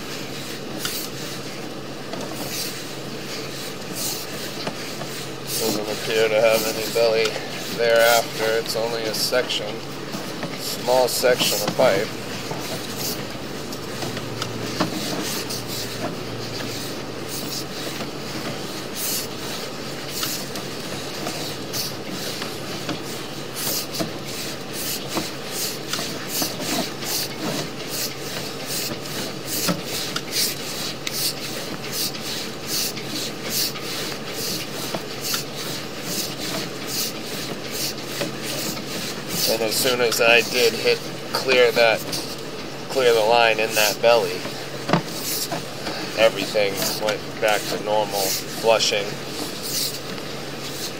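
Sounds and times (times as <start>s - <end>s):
steady low hum: 0.0s - 50.9s
cable scraping through pipe: 43.0s - 50.0s.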